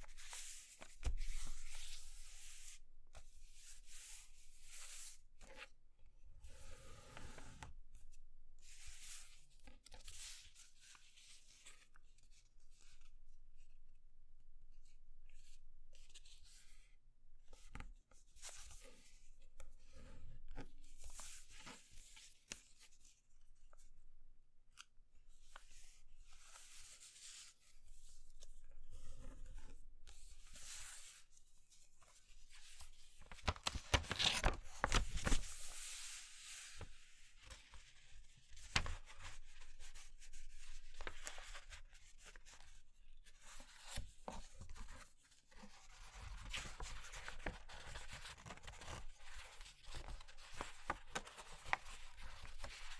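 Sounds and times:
paper rustling and sliding: 32.7s - 39.8s
paper crackling: 33.2s - 35.9s.

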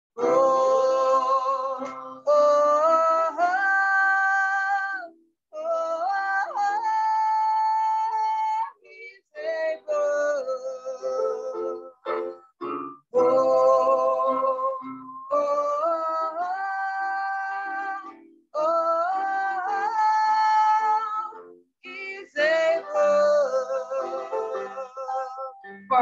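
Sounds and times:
woman singing unaccompanied: 13.2s - 26.0s.

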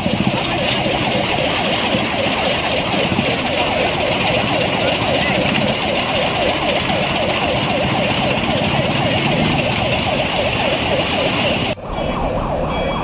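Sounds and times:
steady rumble: 0.0s - 11.8s
siren in fast yelp: 0.0s - 13.0s.

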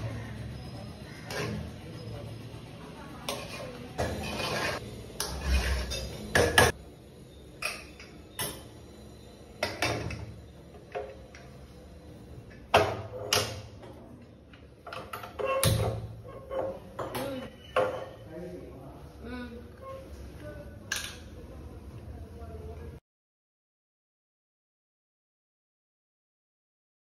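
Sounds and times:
spoon scraping in metal pot: 1.2s - 1.8s, 3.3s - 6.8s
pan moved on stove: 3.3s - 6.7s.

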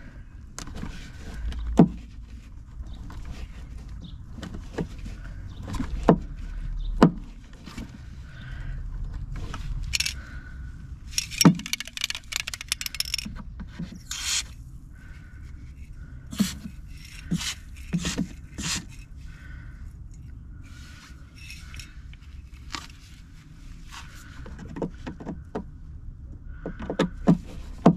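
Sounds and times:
scraping and rustling: 11.1s - 19.5s.

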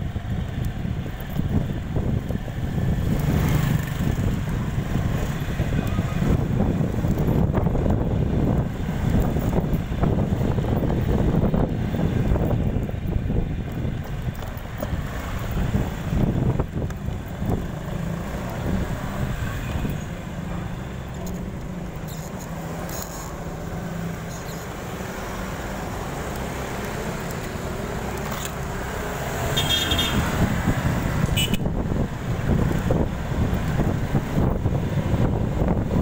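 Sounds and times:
wind rushing over microphone: 0.0s - 22.8s, 28.9s - 36.0s
road traffic noise: 0.0s - 36.0s
high-pitched squeak: 24.2s - 24.7s.

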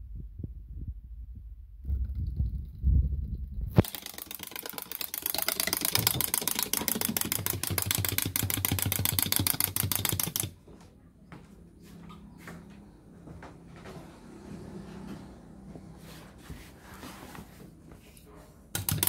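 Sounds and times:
wind-up toy clicking: 3.8s - 10.5s, 18.8s - 19.0s.

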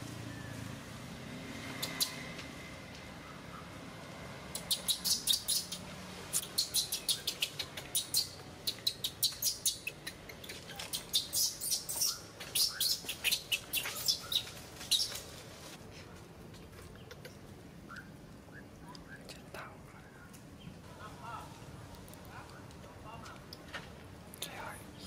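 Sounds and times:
baby monkey squealing: 4.6s - 5.8s, 6.4s - 15.2s.

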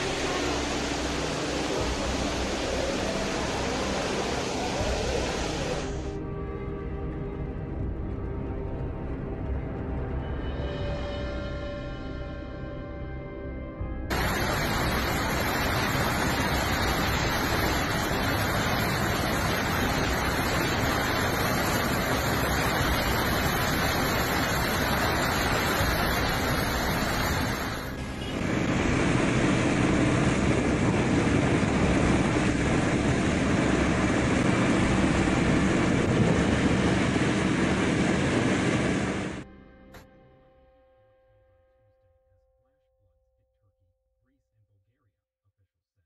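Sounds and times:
rain on flooded road: 0.0s - 6.0s, 14.1s - 39.4s
floodwater rushing: 0.0s - 6.1s, 14.1s - 39.4s
traffic: 0.0s - 6.1s, 14.1s - 39.4s.

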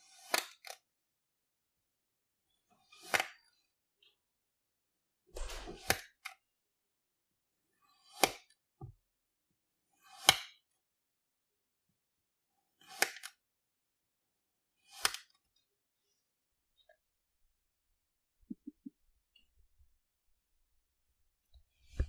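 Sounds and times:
knife slicing kinetic sand: 0.0s - 0.8s, 2.8s - 3.6s, 7.8s - 8.6s, 9.9s - 10.8s, 12.6s - 13.4s, 14.8s - 15.5s.

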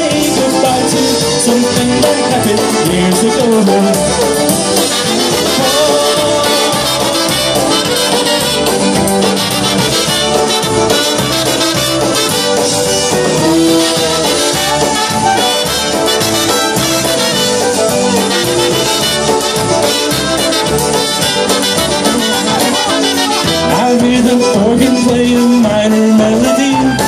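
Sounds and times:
polka band playing: 0.0s - 27.0s
trumpets playing melody: 0.0s - 27.0s.

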